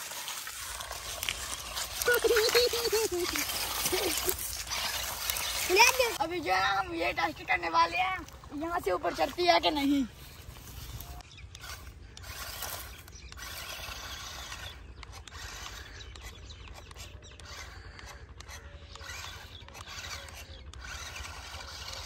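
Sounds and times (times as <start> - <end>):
remote-control car motors whirring: 0.0 - 22.0.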